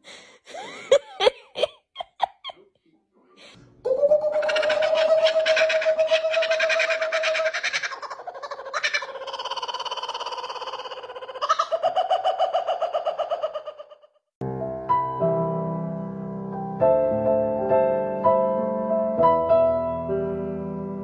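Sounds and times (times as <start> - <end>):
kookaburra calling: 3.9 - 14.1
piano music: 14.4 - 21.0.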